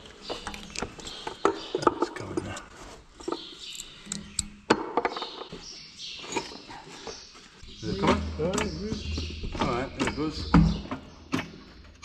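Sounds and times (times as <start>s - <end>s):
hand tools knocking on metal: 7.8s - 11.5s.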